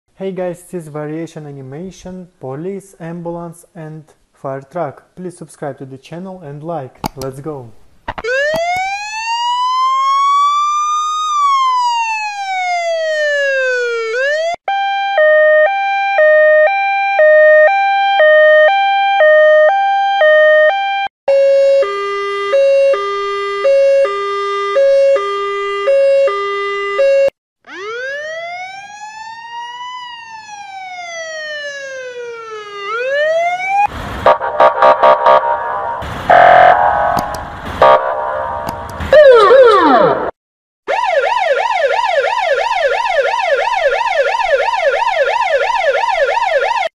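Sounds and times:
two-tone hi-lo siren: 0:08.2 - 0:40.3, 0:40.9 - 0:46.9
wailing siren: 0:08.2 - 0:40.3, 0:40.9 - 0:46.9
loud siren blare: 0:08.2 - 0:46.9
short horn blasts: 0:34.3 - 0:38.8.

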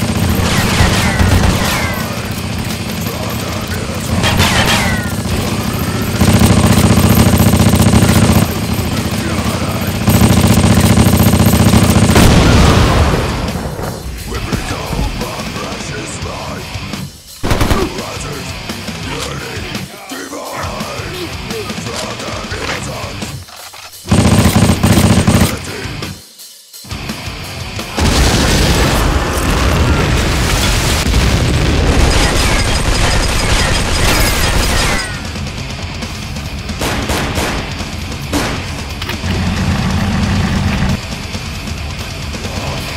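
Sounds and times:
rapid automatic gunfire: 0:00.0 - 0:13.5, 0:17.4 - 0:18.2, 0:24.0 - 0:25.7, 0:31.0 - 0:35.5, 0:36.7 - 0:41.0
action music: 0:00.0 - 0:23.4, 0:24.0 - 0:42.9
loud boom: 0:12.2 - 0:14.3.

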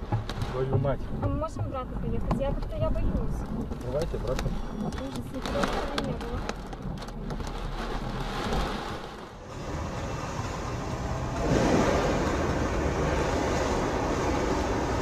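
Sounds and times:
car road and engine noise: 0:00.0 - 0:15.0
storm wind and rain: 0:00.0 - 0:15.0.

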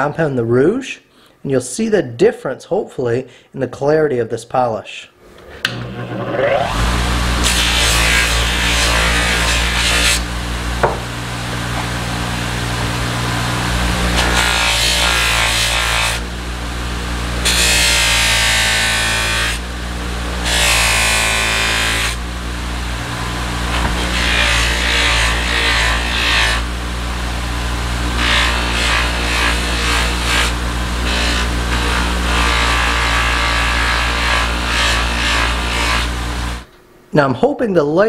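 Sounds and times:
bench buffer motor humming: 0:05.4 - 0:36.7
knife blade rubbing on buffing wheel: 0:23.3 - 0:26.6.

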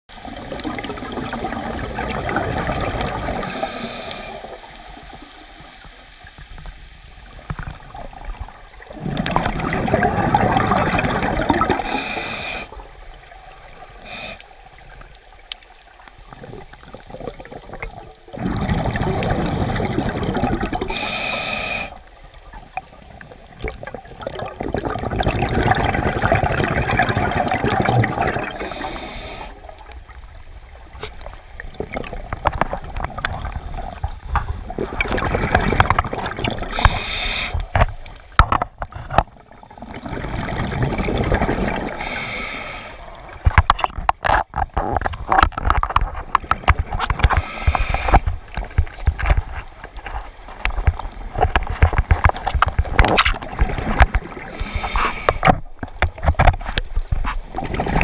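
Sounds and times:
regulator hiss: 0:03.4 - 0:04.6, 0:11.8 - 0:12.8, 0:14.0 - 0:14.6, 0:20.9 - 0:22.0, 0:28.6 - 0:29.6, 0:36.7 - 0:37.7, 0:42.0 - 0:43.1, 0:47.4 - 0:48.2
regulator exhalation bubbling: 0:17.2 - 0:22.0.

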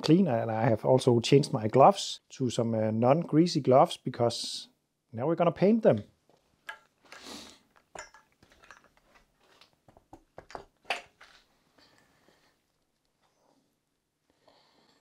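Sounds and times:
knocks and clinks of objects handled: 0:06.6 - 0:11.5.

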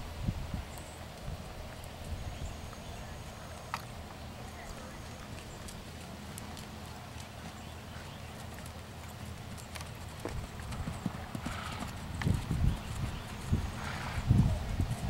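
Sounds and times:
horse hoofbeats on sand: 0:04.7 - 0:15.0.

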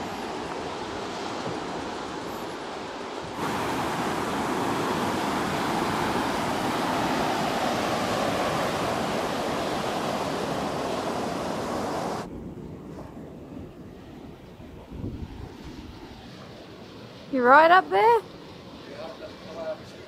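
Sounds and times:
ocean surf breaking on beach: 0:00.0 - 0:12.3.

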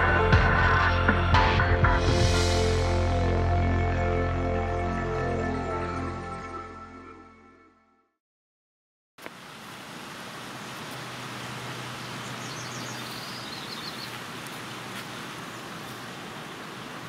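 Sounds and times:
rushing outdoor background noise: 0:09.2 - 0:17.0.

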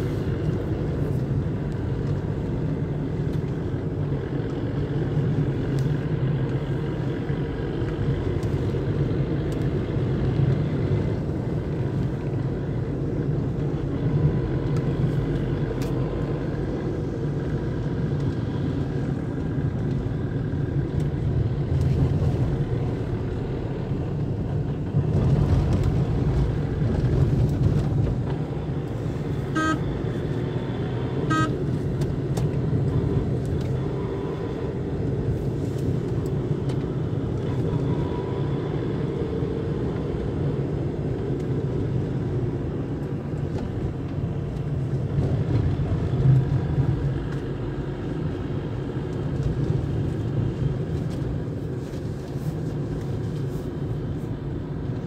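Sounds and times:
car engine and road noise: 0:00.0 - 0:55.0
car horn beeps: 0:29.4 - 0:30.0, 0:31.2 - 0:31.7.

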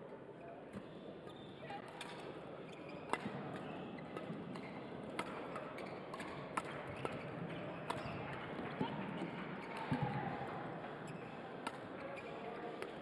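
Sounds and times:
sports hall background noise: 0:00.0 - 0:13.0
rackets hitting shuttlecock: 0:03.1 - 0:10.2.

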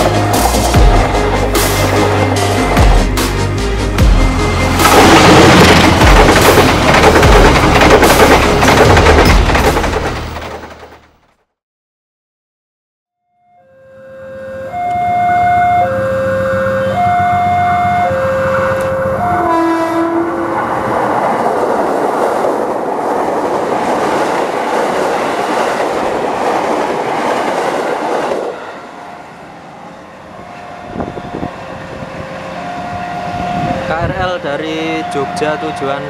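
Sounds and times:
train passing with wheel clatter: 0:00.0 - 0:11.1, 0:15.4 - 0:36.0
level crossing alarm two tones: 0:13.3 - 0:19.5
train horn: 0:13.5 - 0:20.7, 0:30.4 - 0:36.0.

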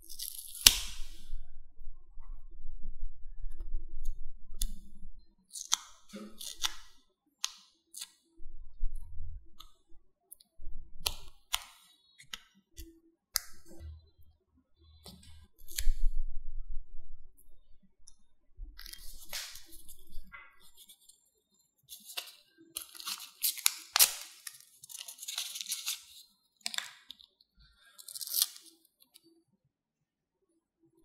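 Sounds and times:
paper rubbing and rustling: 0:21.9 - 0:26.2.

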